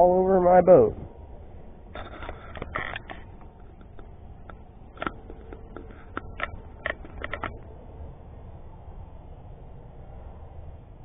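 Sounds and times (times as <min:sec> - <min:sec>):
low steady rumble: 0:00.0 - 0:11.0
camera handling clicks and knocks: 0:02.0 - 0:07.6.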